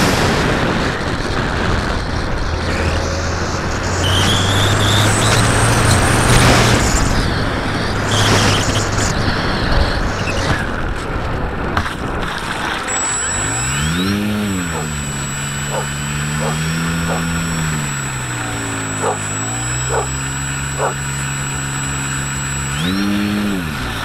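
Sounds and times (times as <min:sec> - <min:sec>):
propeller motor hum: 0:12.2 - 0:24.0.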